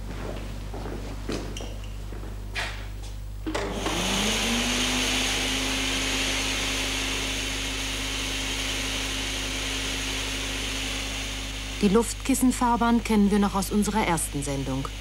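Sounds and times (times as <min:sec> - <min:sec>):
blower motor humming: 0:03.4 - 0:15.0.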